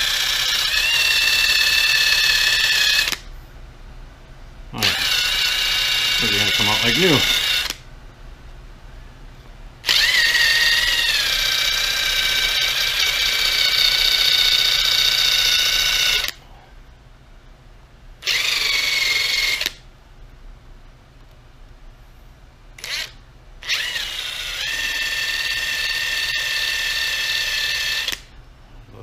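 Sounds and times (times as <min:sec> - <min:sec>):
electric drill whining: 0:00.0 - 0:03.3, 0:04.8 - 0:07.8, 0:09.8 - 0:16.4, 0:18.2 - 0:19.8, 0:22.8 - 0:28.3.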